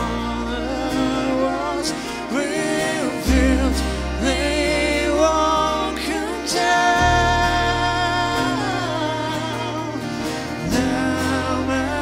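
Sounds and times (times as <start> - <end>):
acoustic guitar: 0.0 - 12.0
violin: 0.0 - 12.0.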